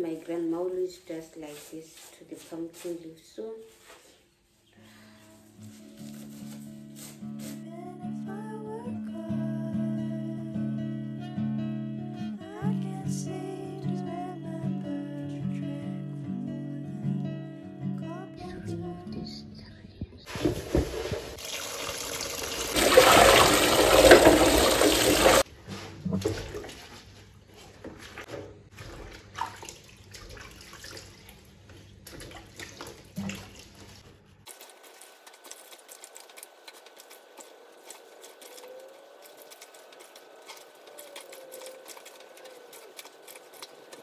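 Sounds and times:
hands swishing leaves in water: 0:01.4 - 0:04.1, 0:05.3 - 0:07.7, 0:22.8 - 0:44.0
water running into plastic basin: 0:20.3 - 0:44.0.

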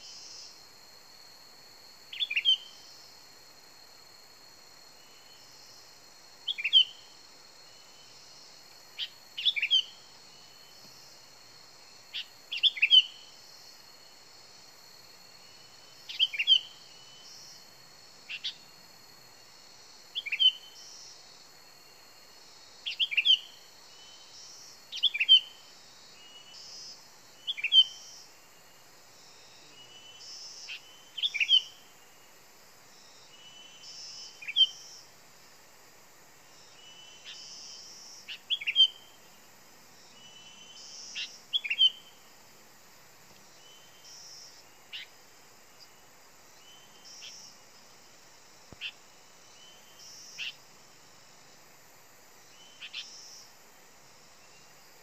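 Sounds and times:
steady high-pitched hum: 0:00.0 - 0:55.0
bird chirping: 0:09.0 - 0:10.5, 0:36.6 - 0:39.2, 0:40.1 - 0:42.1, 0:48.8 - 0:50.6, 0:52.5 - 0:53.4.

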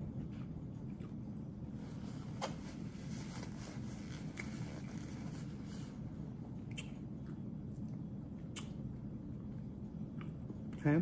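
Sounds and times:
person chewing: 0:00.4 - 0:01.5, 0:06.3 - 0:10.8.

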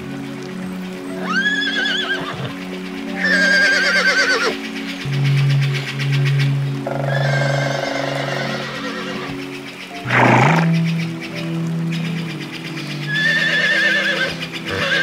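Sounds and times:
background music sustained tones: 0:00.0 - 0:15.0
horse whinnying: 0:01.3 - 0:02.5, 0:03.2 - 0:04.6, 0:13.1 - 0:15.0.

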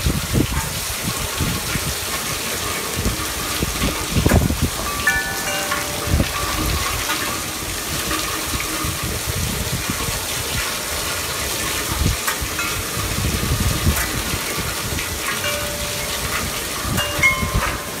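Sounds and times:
wind buffeting microphone: 0:00.0 - 0:05.2, 0:05.9 - 0:18.0
heavy rain pouring: 0:00.0 - 0:18.0
metal wind chimes ringing: 0:04.3 - 0:09.3, 0:12.5 - 0:18.0.

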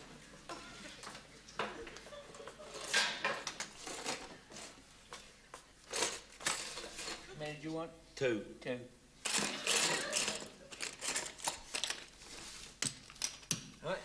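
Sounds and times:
letters rattling in cardboard box: 0:09.3 - 0:12.1.

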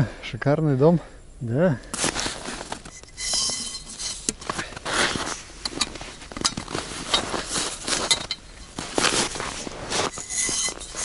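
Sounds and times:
fabric rustling: 0:02.0 - 0:11.0
metal tubes clicking and clinking: 0:02.8 - 0:04.6, 0:05.2 - 0:11.0.

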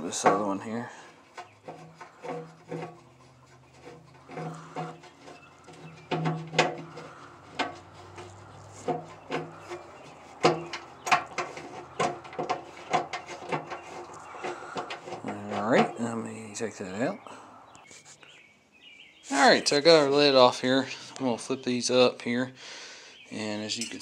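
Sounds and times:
wrench clicking and scraping on bolts: 0:00.0 - 0:16.0.

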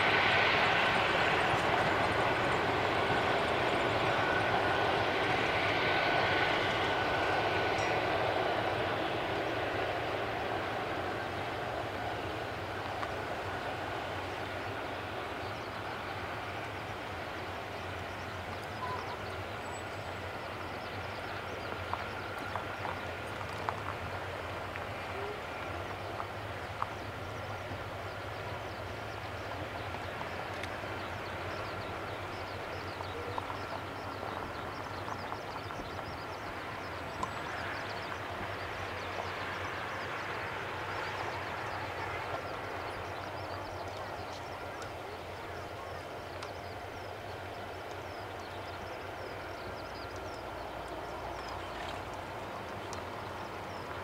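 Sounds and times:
distant jet engines rumbling: 0:00.0 - 0:54.0
faint clicks: 0:46.3 - 0:46.7, 0:50.0 - 0:54.0.

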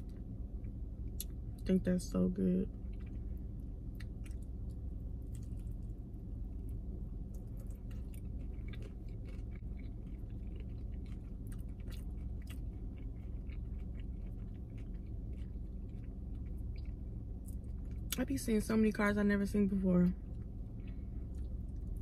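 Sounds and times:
low hum inside car: 0:00.0 - 0:22.0
chewing crunchy food: 0:02.6 - 0:18.2, 0:20.1 - 0:22.0.

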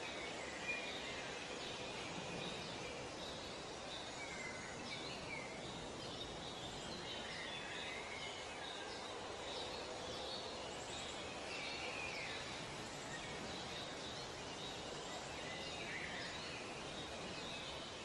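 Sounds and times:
steady hiss: 0:00.0 - 0:18.0.

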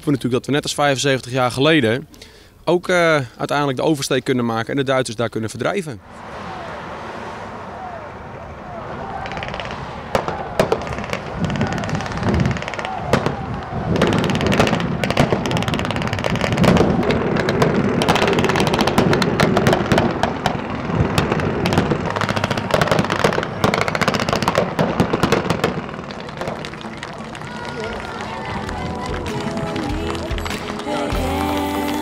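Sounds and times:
blank gunfire: 0:09.3 - 0:27.1.

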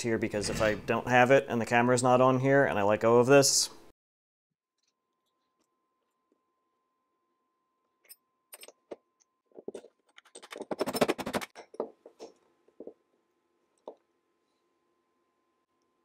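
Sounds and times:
small metal clicks and rattles: 0:09.6 - 0:12.4.

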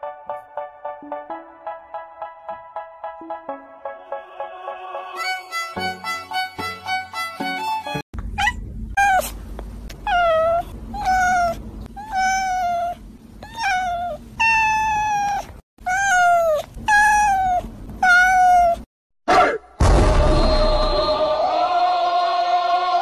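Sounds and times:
cat meowing: 0:08.4 - 0:09.4, 0:10.0 - 0:18.9.

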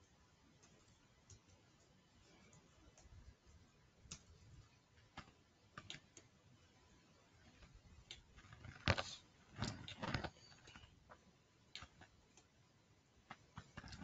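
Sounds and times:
computer mouse clicks: 0:00.0 - 0:04.4, 0:05.0 - 0:06.3, 0:11.7 - 0:12.6.

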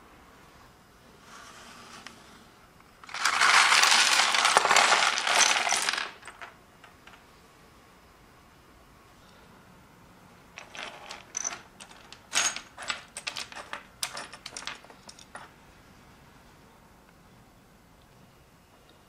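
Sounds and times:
plastic toys clattering: 0:03.0 - 0:07.2, 0:10.6 - 0:15.5.

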